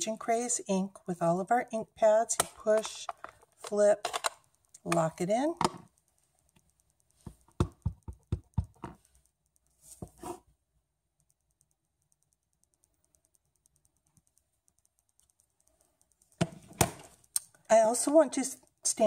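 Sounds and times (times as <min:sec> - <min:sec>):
stamp block tapping ink pad: 0:04.8 - 0:09.3.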